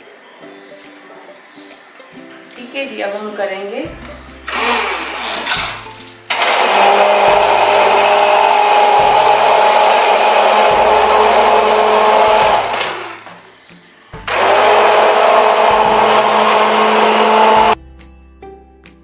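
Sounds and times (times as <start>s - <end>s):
hand blender whining: 4.5s - 13.5s, 14.2s - 17.8s.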